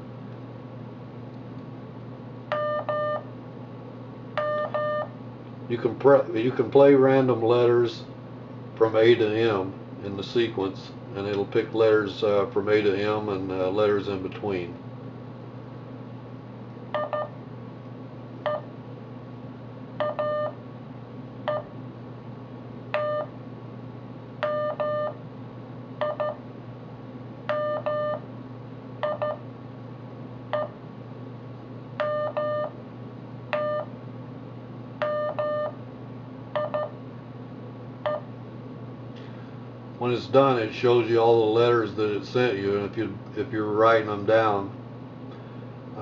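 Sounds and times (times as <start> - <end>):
steady low hum: 0.0 - 46.0
morse code beeps: 2.5 - 3.2, 4.4 - 5.1, 17.0 - 17.3, 20.0 - 20.6, 23.0 - 23.3, 24.4 - 25.2, 27.5 - 28.2, 29.0 - 29.4, 32.0 - 32.7, 33.6 - 33.9, 35.0 - 35.8, 36.6 - 36.9.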